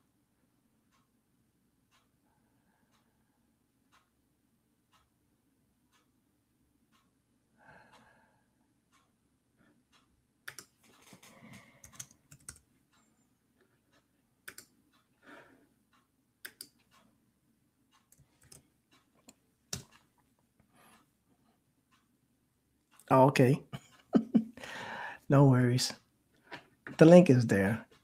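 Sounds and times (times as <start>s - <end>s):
typing on a computer keyboard: 10.5s - 12.6s, 14.4s - 14.7s, 18.1s - 18.6s.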